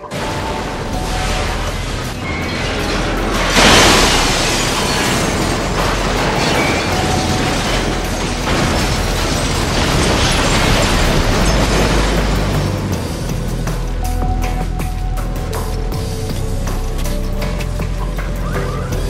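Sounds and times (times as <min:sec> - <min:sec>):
metal tower crashing down: 0:00.0 - 0:13.4
dense crashing noise: 0:00.0 - 0:14.0.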